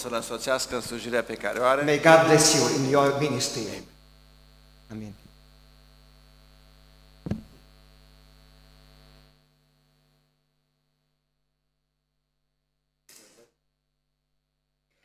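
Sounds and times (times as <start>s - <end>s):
electrical mains hum: 0.0s - 12.8s
sharp knock: 7.2s - 7.6s.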